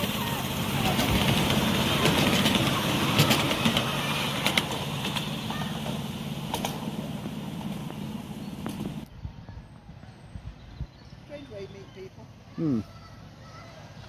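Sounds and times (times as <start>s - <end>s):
wheels clicking on rails: 0.0s - 9.1s
locomotive low hum: 0.0s - 14.0s.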